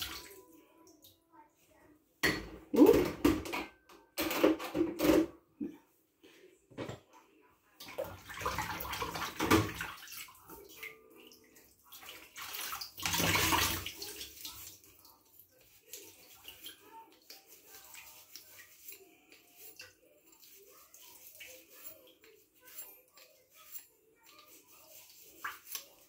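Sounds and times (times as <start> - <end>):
dishes clattering in metal sink: 2.2 - 5.4, 6.7 - 7.1, 7.9 - 10.0
water sloshing and splashing: 7.8 - 21.7
sponge scrubbing: 12.0 - 26.0.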